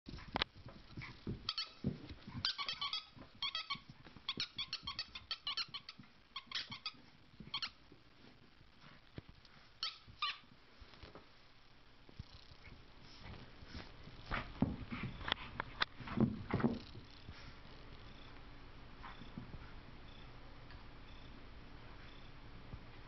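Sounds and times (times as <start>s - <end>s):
dog whining squeaks: 1.5s - 7.8s, 9.8s - 10.5s.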